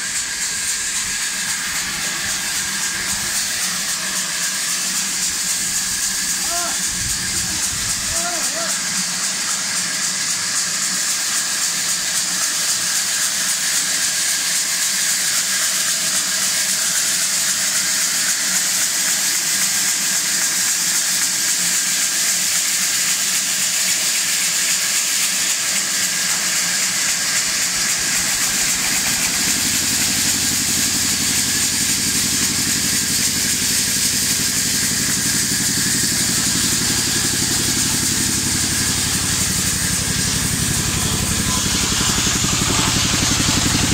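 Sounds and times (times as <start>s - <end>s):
band sawmill hiss and drone: 0.0s - 43.9s
low steady engine hum: 26.5s - 43.9s.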